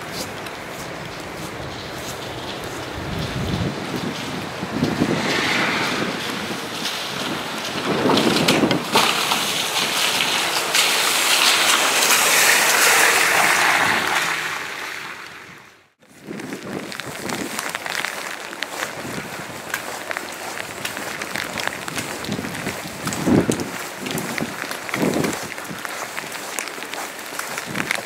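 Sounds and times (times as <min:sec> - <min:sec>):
car tyres hissing on wet road: 0:00.0 - 0:15.6
steady rain: 0:00.0 - 0:15.6, 0:16.2 - 0:28.0
wind on microphone: 0:01.4 - 0:10.3, 0:16.1 - 0:18.0, 0:18.7 - 0:26.4, 0:27.5 - 0:28.0.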